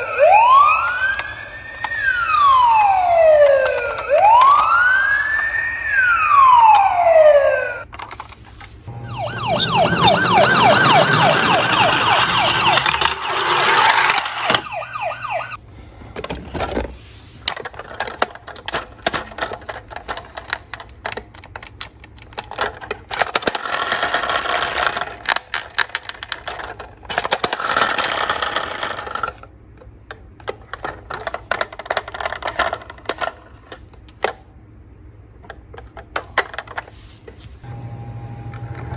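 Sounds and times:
fast repeating siren tones: 0.0 - 7.8, 8.9 - 15.6
toy siren wailing: 0.0 - 7.8, 8.9 - 15.6
plastic toy cars clicking: 3.4 - 5.6, 11.3 - 14.7, 17.4 - 34.5, 35.4 - 37.0
toy whirring: 9.6 - 15.6.

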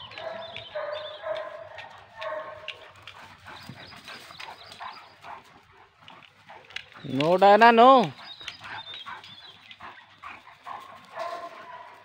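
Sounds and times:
dogs yelping: 0.0 - 12.0.

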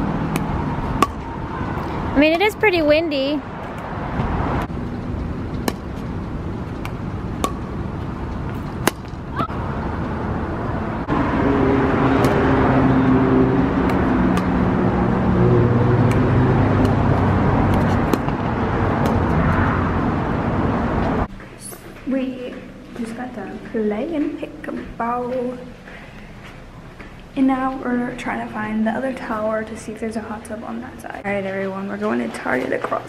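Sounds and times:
vehicle engine drone: 0.0 - 21.3
wind noise on microphone: 0.0 - 21.3.

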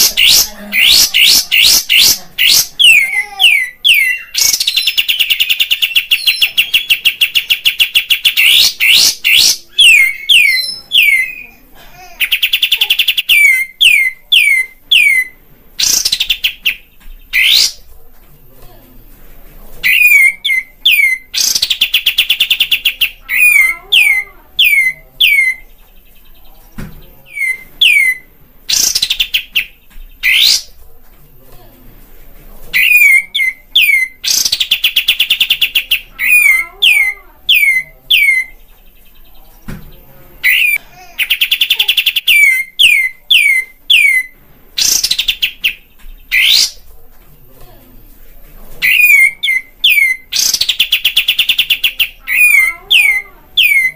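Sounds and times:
bird rapid chattering: 0.0 - 17.9, 19.8 - 26.1, 27.2 - 30.8, 32.7 - 39.3, 40.4 - 46.9, 48.8 - 53.9
quieter bird calls: 19.8 - 30.8, 48.8 - 53.9.

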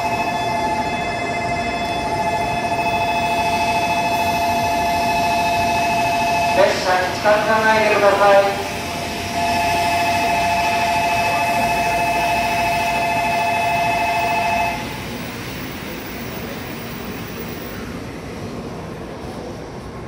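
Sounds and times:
electronic departure bell: 0.0 - 7.6, 9.2 - 14.9
platform and train hum: 0.0 - 20.0.

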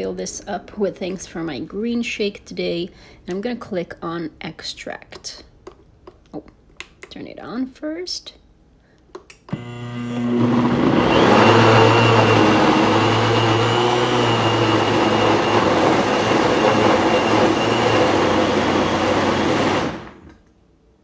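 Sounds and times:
blender motor whining: 9.5 - 20.3.

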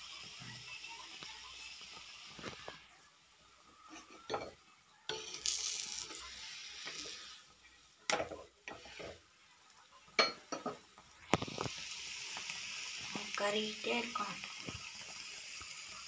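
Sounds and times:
hot oil sizzling: 0.0 - 16.0
metal spatula scraping griddle: 5.1 - 7.5, 8.7 - 9.2.

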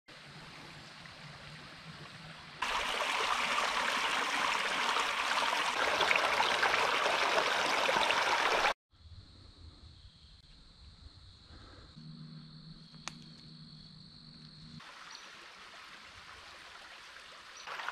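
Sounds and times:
stream rushing over rocks: 2.6 - 8.7, 14.8 - 17.9.

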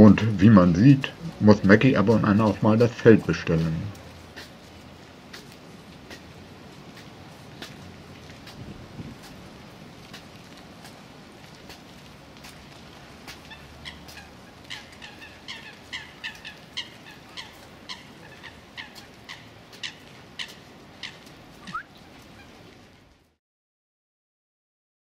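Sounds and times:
short sharp bird calls: 21.0 - 22.5
short rising bird call: 21.6 - 22.0.

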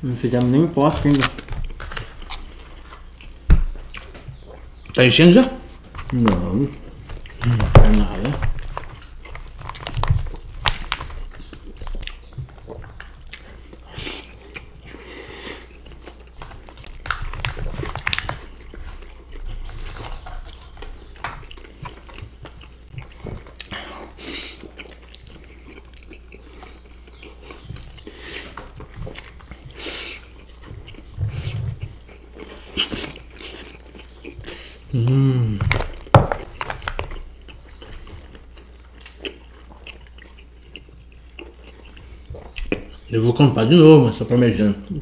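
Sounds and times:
chewing and wet mouth sounds: 0.3 - 43.5.

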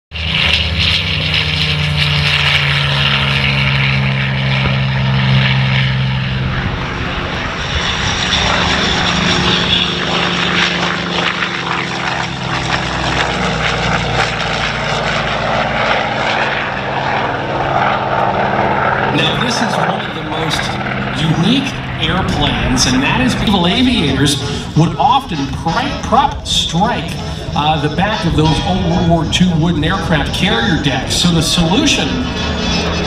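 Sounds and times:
propeller plane engine passing: 0.1 - 33.0.

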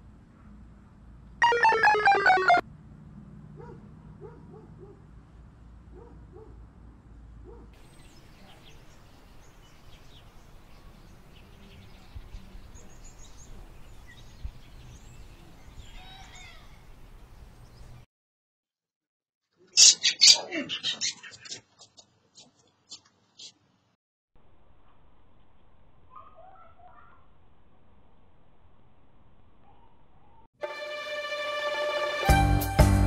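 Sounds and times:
electronic ringtone notes: 1.4 - 2.6
small birds chirping: 7.5 - 18.0, 26.1 - 27.3.

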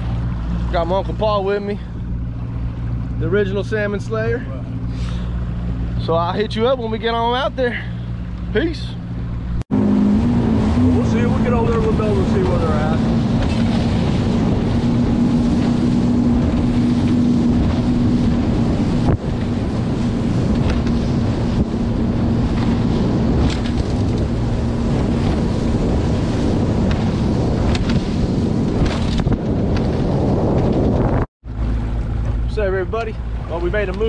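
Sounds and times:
outboard motor running: 0.0 - 34.0
wind buffeting microphone: 9.2 - 34.0.

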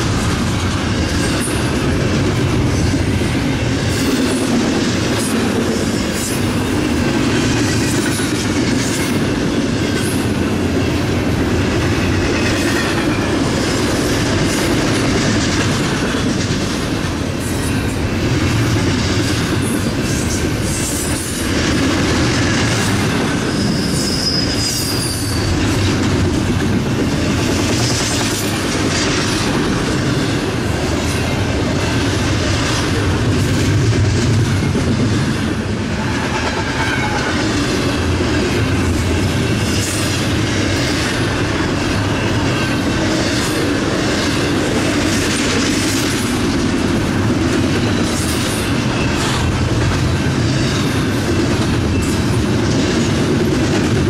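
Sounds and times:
train wheels rumbling on rail: 0.0 - 54.0
high wheel squeal: 23.3 - 25.7.

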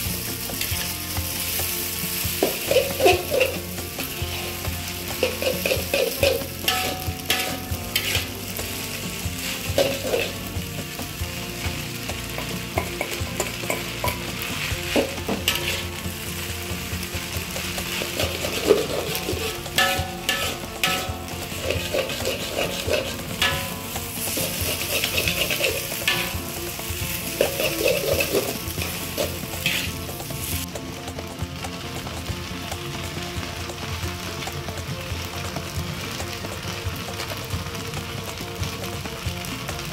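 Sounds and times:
food sizzling in a pan: 0.0 - 39.9
utensil scraping pan: 2.2 - 11.0, 12.4 - 16.5, 17.1 - 30.7.

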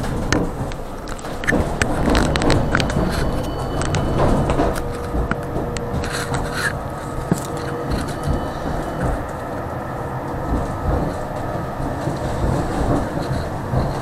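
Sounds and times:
faint steady whine: 0.0 - 14.0
tram wheels rumbling on rails: 0.0 - 14.0.

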